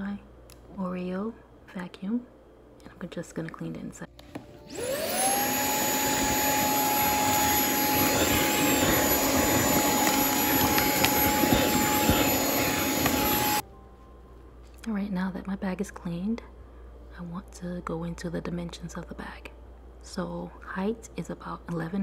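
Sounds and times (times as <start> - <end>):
handheld vacuum motor humming: 4.7 - 13.6.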